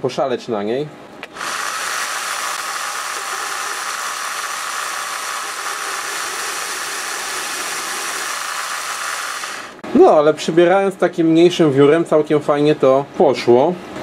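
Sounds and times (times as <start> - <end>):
lathe motor whirring: 1.2 - 9.8.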